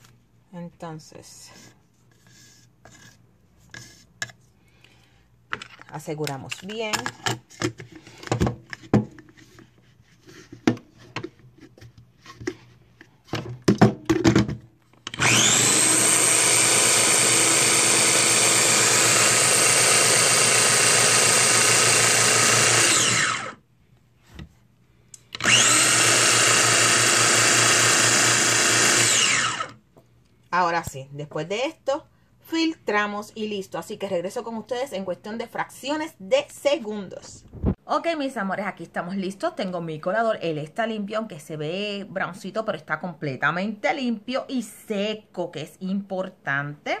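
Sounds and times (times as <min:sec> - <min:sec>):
blender motor whining: 0:15.1 - 0:23.6, 0:25.3 - 0:29.8.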